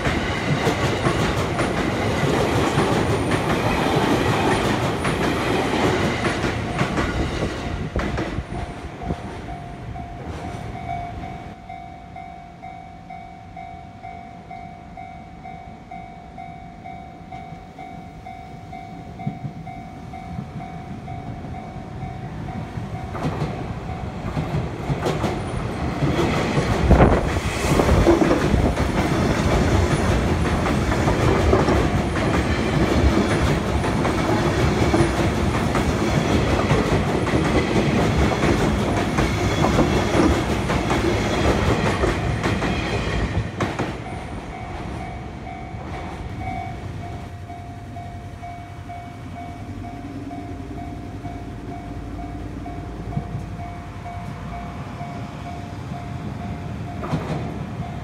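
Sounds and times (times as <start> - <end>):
train wheels and running gear: 0.0 - 11.8, 16.8 - 58.0
level crossing warning bell: 0.0 - 24.6, 44.0 - 58.0
train passing: 0.0 - 58.0.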